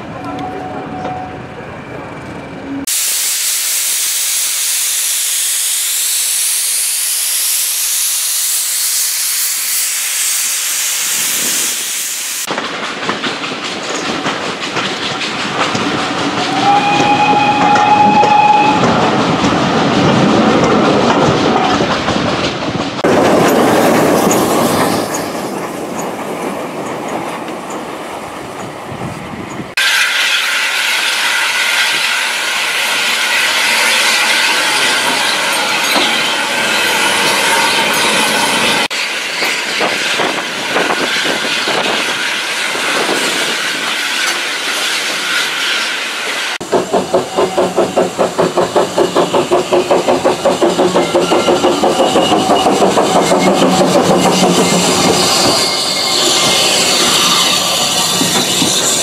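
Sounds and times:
moving train running noise: 0.0 - 59.0
steam locomotive hissing: 2.0 - 21.8, 29.8 - 59.0
train whistle: 16.4 - 19.1.

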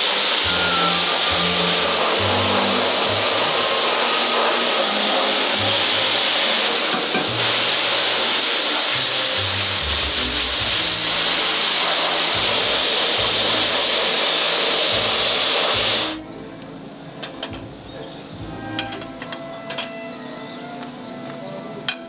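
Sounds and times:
abrasive blasting machine hiss: 0.0 - 16.2.

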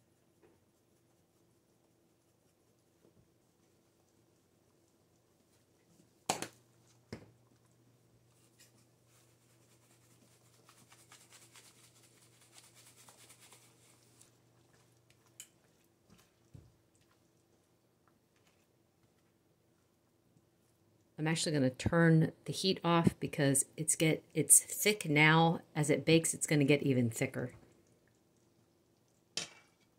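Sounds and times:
powder rattling from shaker: 9.8 - 13.9.

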